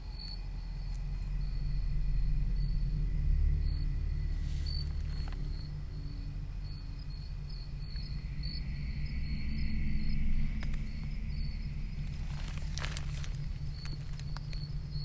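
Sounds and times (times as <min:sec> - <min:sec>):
crickets chirping: 0:00.0 - 0:15.0
low continuous rumble: 0:00.0 - 0:15.0.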